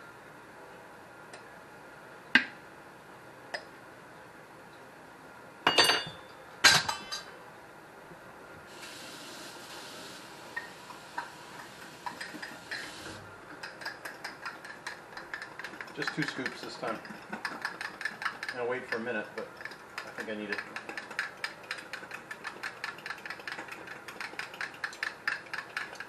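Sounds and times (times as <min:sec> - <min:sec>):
glass and metal kitchenware clinking: 0:05.7 - 0:07.3
steady hiss: 0:08.6 - 0:13.4
spoon stirring in glass cup: 0:13.6 - 0:26.0.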